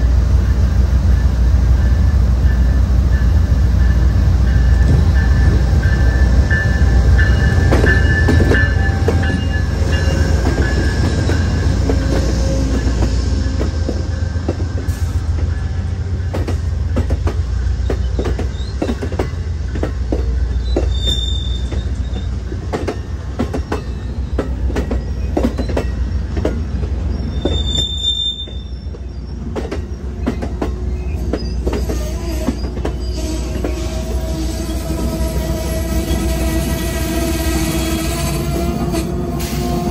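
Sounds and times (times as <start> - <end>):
locomotive rumble: 0.0 - 39.9
high wheel squeals: 20.5 - 22.6, 27.0 - 39.9.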